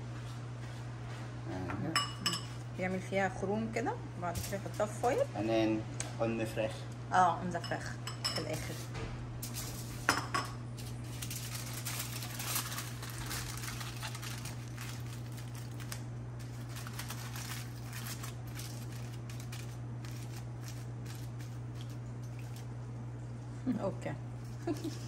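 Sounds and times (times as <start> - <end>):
steady low hum: 0.0 - 25.0
aluminium foil crinkling: 8.5 - 10.1, 10.7 - 22.8, 24.4 - 25.0.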